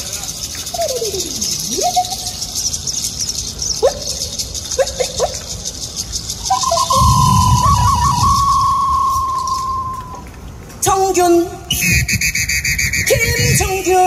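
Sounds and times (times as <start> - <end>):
squeaky pitched percussion calls: 6.4 - 10.2, 11.7 - 14.0
long held tone: 6.5 - 10.2.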